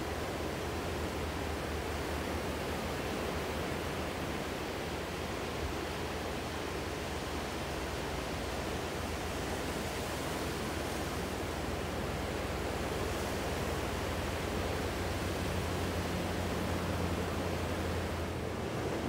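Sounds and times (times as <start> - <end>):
ocean surf breaking on shore: 10.5 - 19.0.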